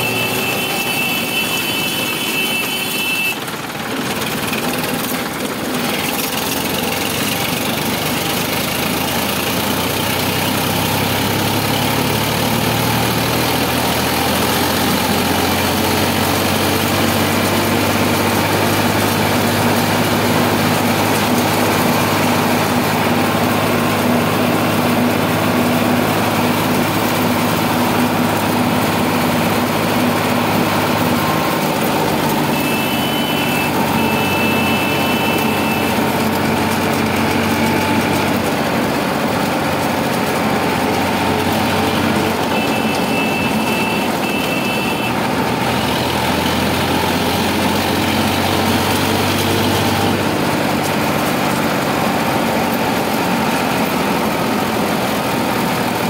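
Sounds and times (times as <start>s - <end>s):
short high tone: 0.0s - 3.5s, 32.5s - 36.1s, 42.4s - 45.2s
tractor diesel engine running: 0.0s - 56.0s.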